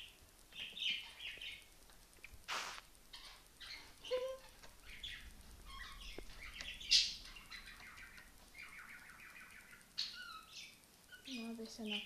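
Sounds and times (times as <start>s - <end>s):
pet bird chirping: 0.0s - 1.7s, 3.1s - 12.0s
loud sharp sound: 2.5s - 2.8s.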